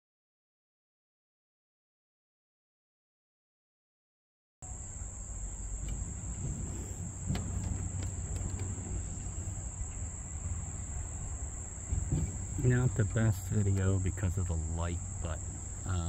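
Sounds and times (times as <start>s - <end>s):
insects buzzing: 4.6s - 16.0s
low rumble: 4.6s - 16.0s
faint clicks: 4.7s - 14.3s.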